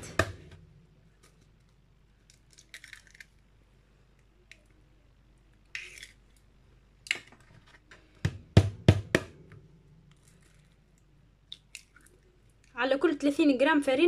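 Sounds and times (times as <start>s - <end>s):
eggshells cracking: 1.2s - 4.8s, 5.5s - 7.4s, 10.1s - 12.8s.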